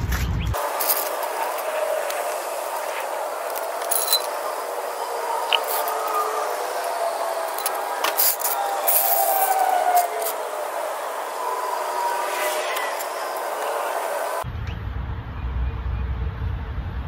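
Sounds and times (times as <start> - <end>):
steady background hum: 0.5 - 14.5
metallic clinks and rattles: 3.5 - 4.4.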